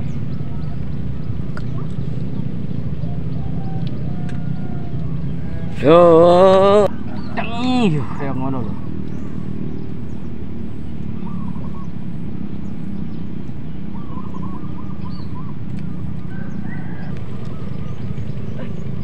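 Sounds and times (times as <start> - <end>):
steady low rumble: 0.0 - 19.0
faint chirping calls: 6.8 - 19.0.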